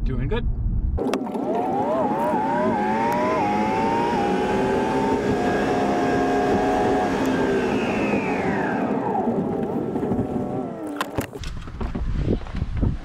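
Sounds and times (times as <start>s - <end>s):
truck engine accelerating: 0.6s - 11.7s
road noise: 0.9s - 12.8s.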